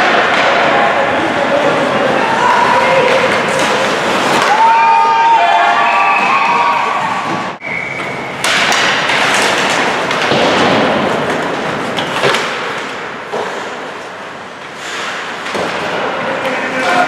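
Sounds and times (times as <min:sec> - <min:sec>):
hockey sticks and puck knocking: 0:02.9 - 0:05.0, 0:07.2 - 0:17.0
skates hissing on ice: 0:14.7 - 0:15.4.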